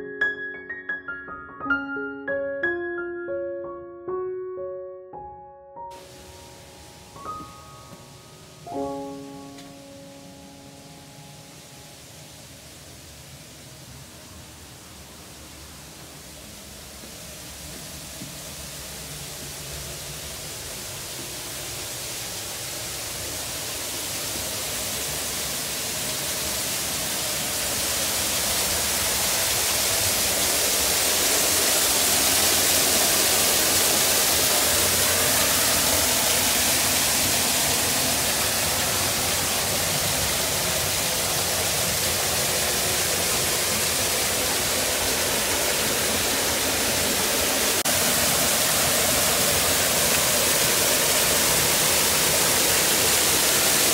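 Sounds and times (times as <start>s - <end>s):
waterfall pouring into pond: 5.9s - 53.9s.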